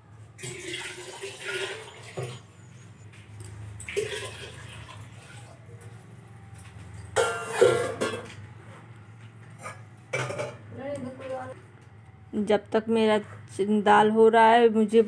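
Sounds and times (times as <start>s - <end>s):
water pouring splash: 0.4s - 2.4s, 3.8s - 5.5s
steel utensil clattering on counter: 7.2s - 8.4s.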